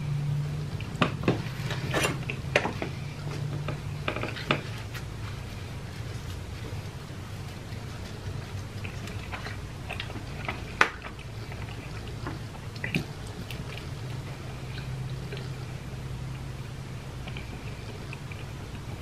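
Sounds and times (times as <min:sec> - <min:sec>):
steady low hum: 0:00.0 - 0:19.0
person chewing: 0:04.0 - 0:15.8, 0:16.5 - 0:19.0.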